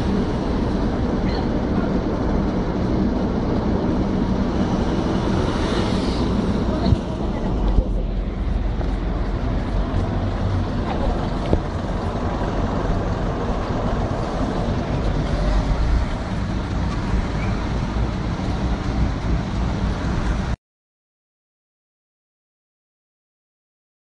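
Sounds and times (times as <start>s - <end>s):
traffic rumble: 0.0s - 20.6s.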